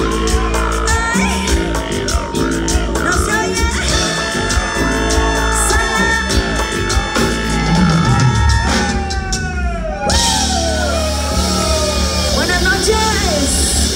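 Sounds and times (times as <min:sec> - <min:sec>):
accordion: 0:00.0 - 0:08.9
live band playing: 0:00.0 - 0:13.9
woman singing: 0:00.1 - 0:02.2, 0:02.9 - 0:08.9.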